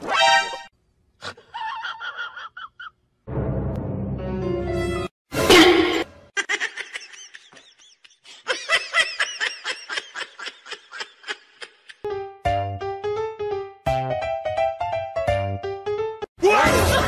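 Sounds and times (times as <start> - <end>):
person laughing: 1.2 - 3.0, 5.5 - 12.1.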